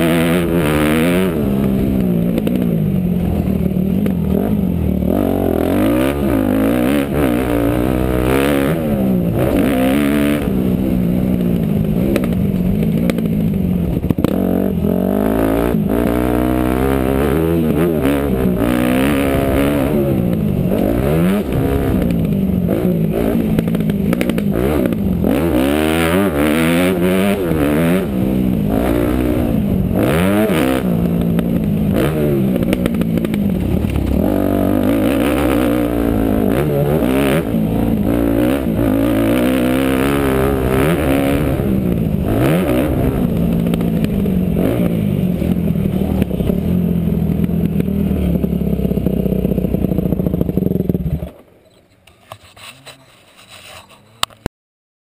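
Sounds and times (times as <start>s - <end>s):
dirt bike engine revving: 0.0s - 51.3s.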